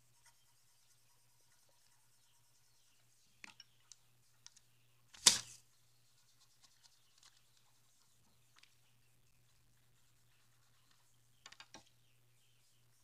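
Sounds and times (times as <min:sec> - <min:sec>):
faint clicks and taps: 0:10.8 - 0:12.0.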